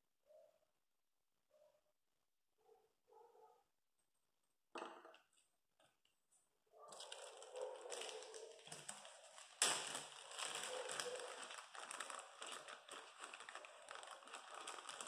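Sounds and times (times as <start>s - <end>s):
plastic bag crinkling: 6.9s - 15.0s.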